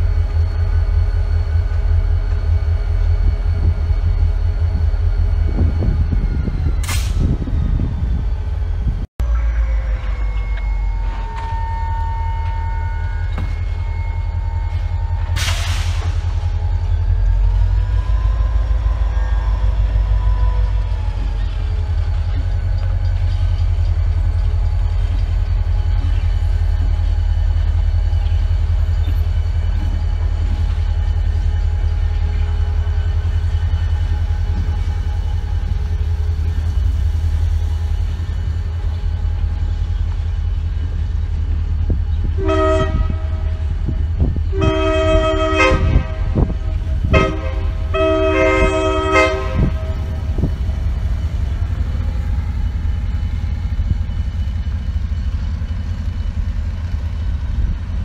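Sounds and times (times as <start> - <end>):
steady low rumble: 21.1 - 58.0
locomotive air horn blasts: 42.2 - 50.5.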